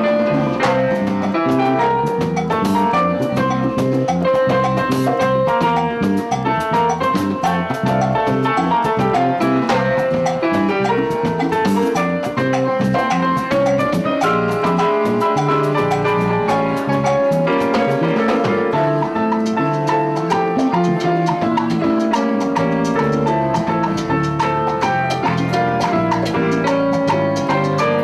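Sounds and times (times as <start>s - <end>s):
drum and percussion rhythm: 0.0s - 28.0s
electronic keyboard melody: 0.0s - 28.0s.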